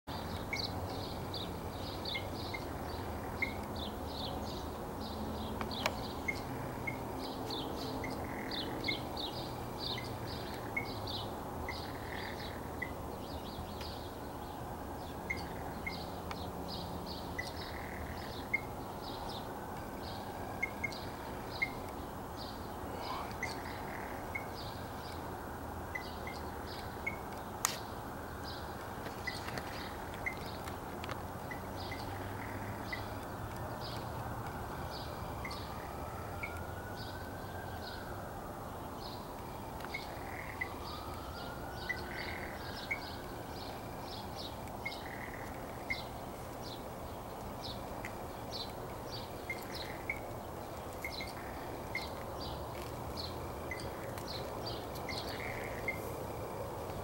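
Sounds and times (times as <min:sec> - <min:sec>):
steady background noise: 0:00.1 - 0:57.0
blue jay calling: 0:05.6 - 0:13.0, 0:15.1 - 0:16.2, 0:17.2 - 0:25.2, 0:44.8 - 0:46.2, 0:47.8 - 0:52.2, 0:53.3 - 0:56.1.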